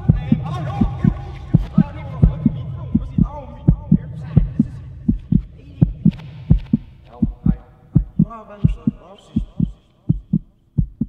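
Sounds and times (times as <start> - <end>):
heartbeat-like low thumps: 0.0 - 11.0.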